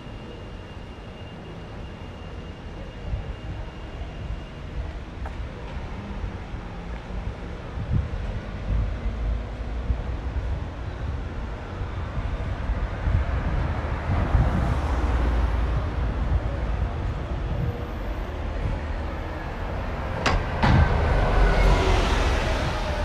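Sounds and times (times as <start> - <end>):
bus passing by: 0.0 - 23.0
wind on microphone: 7.1 - 19.0.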